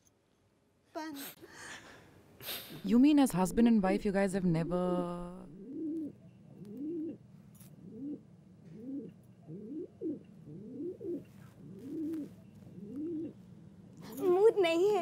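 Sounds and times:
dove cooing: 5.5s - 7.2s, 7.8s - 13.7s.

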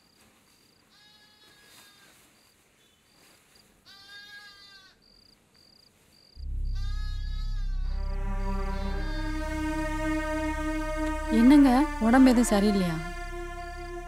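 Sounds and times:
crickets chirping: 4.5s - 14.0s
high wavering notes: 6.4s - 14.0s
low bass drone music: 6.4s - 14.0s.

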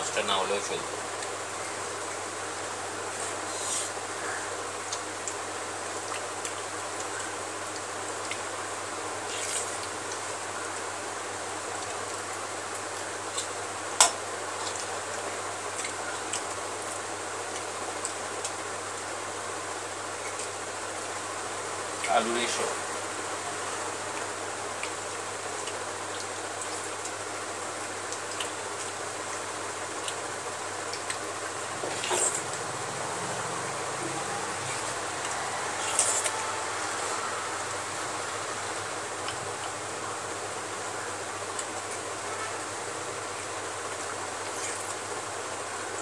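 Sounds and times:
steady hiss: 0.0s - 46.0s
faint eating clicks: 4.8s - 8.5s, 24.1s - 32.6s
low hum: 31.2s - 41.8s.

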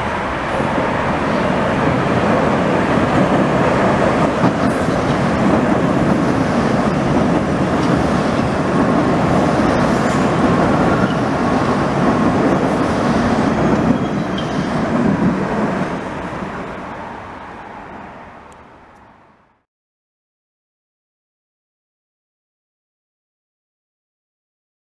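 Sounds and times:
train wheels rumbling on rails: 0.0s - 19.2s.

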